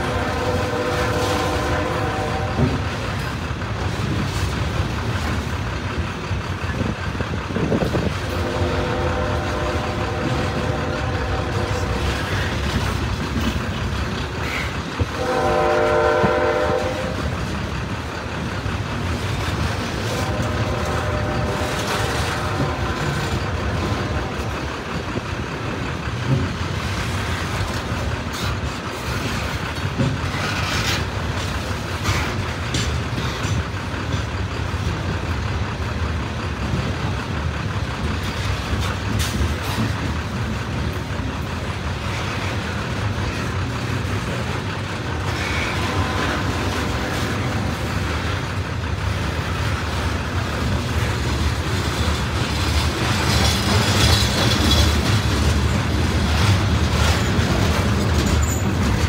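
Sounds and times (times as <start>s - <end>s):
train horn: 0.0s - 3.0s, 8.2s - 12.6s, 14.4s - 17.4s, 19.8s - 24.7s, 45.0s - 48.4s
wheel-on-rail noise and clicks: 0.0s - 59.0s.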